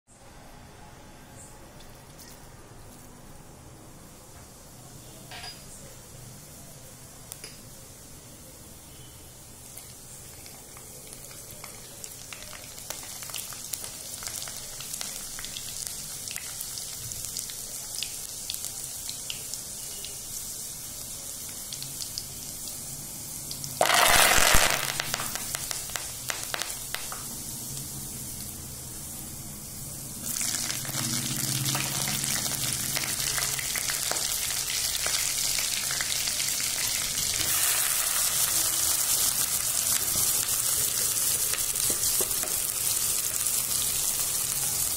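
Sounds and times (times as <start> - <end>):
seeds sizzling in hot oil: 7.3 - 44.9
burst of sizzling: 19.4 - 44.9.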